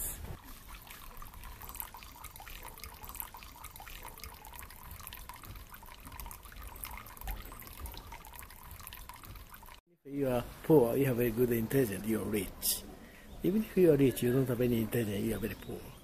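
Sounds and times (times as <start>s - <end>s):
water trickling into stone basin: 0.4s - 9.8s, 13.5s - 16.0s.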